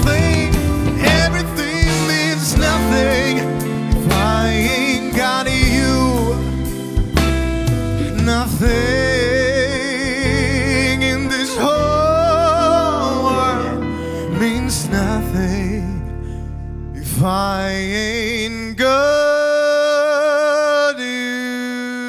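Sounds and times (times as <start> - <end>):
band accompaniment: 0.0 - 14.5
man singing soul ballad: 0.0 - 22.0.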